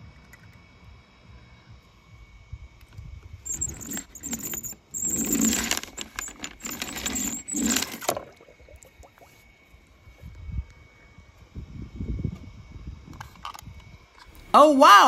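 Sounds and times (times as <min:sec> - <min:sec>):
toy car wheels rattling on paper: 0:03.5 - 0:08.2.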